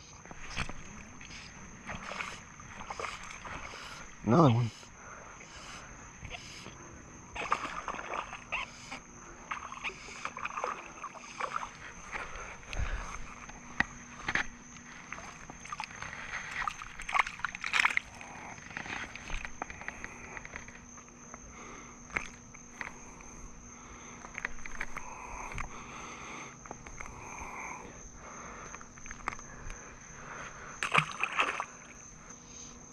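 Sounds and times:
small water splashes: 7.4 - 8.6, 9.4 - 12.2, 15.1 - 19.4, 30.8 - 32.0.

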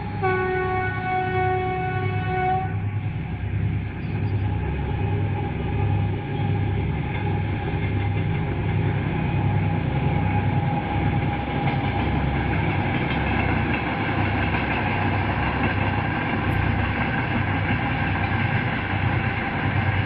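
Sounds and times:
train horn: 0.0 - 3.0
low throb of running train: 0.0 - 20.0.

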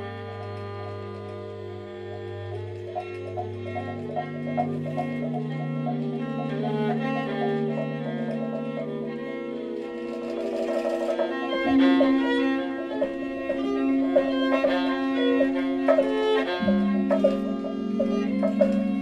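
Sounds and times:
violin playing held notes: 0.0 - 19.0
low held tone: 1.8 - 19.0
struck percussion hits: 2.9 - 9.2, 10.2 - 19.0.

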